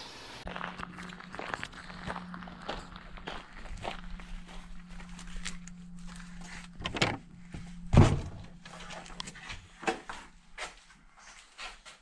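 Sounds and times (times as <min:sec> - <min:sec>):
heavy door thud: 0:07.9 - 0:08.5.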